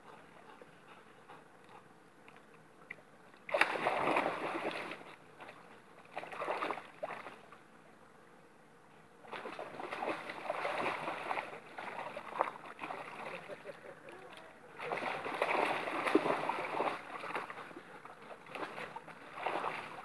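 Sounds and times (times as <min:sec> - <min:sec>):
dog splashing through shallow water: 0:03.5 - 0:07.4, 0:09.3 - 0:13.6, 0:14.8 - 0:20.0.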